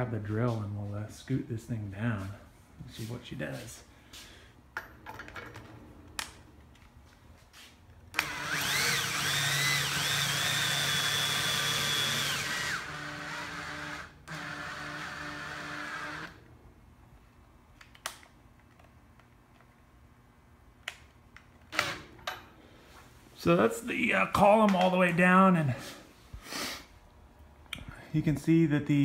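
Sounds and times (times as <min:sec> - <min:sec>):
drill motor whine: 0:08.2 - 0:16.4.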